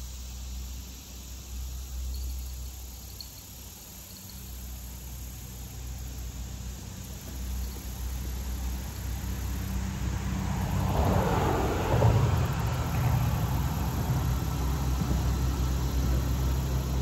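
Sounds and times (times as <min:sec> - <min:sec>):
faint insect chirps: 0:00.0 - 0:11.5
vehicle engine humming: 0:04.0 - 0:17.0.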